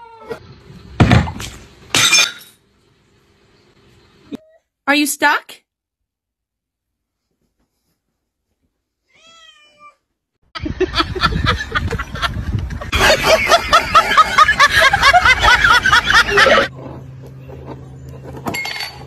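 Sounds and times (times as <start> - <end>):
cats meowing: 9.1 - 10.0.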